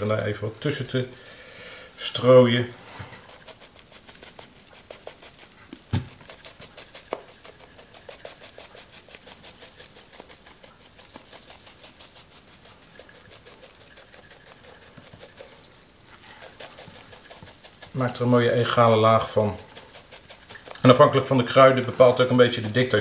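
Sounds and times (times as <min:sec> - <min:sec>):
spice shaker rattling: 0:03.2 - 0:05.5, 0:06.1 - 0:15.7, 0:16.4 - 0:20.9.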